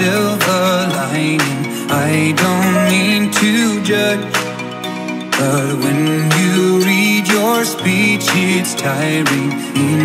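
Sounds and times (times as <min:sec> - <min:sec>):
recorded song with beat: 0:00.0 - 0:10.0.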